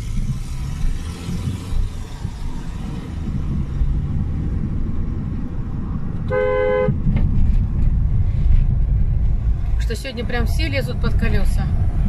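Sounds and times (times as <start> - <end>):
car engine and road rumble: 0.0 - 12.0
two-tone car horn: 6.2 - 7.0.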